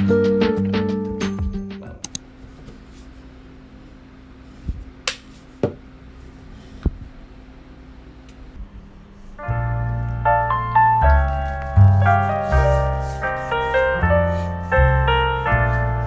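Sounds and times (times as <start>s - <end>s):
background music: 0.0s - 2.2s, 9.4s - 16.0s
faint steady hum: 1.9s - 16.0s.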